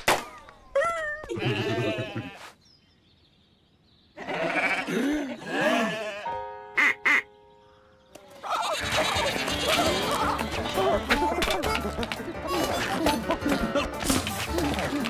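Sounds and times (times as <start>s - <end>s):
rising and falling vocal calls: 8.2s - 11.1s
busy loud cartoon music: 8.6s - 15.0s.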